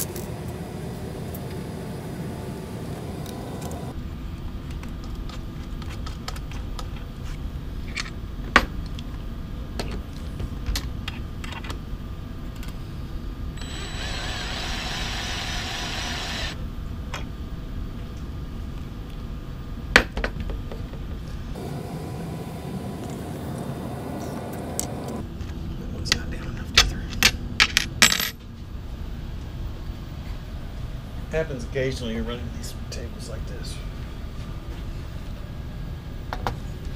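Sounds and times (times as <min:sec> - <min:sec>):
cordless drill driving screw: 0:13.6 - 0:16.6
steady low rumble: 0:21.5 - 0:25.3.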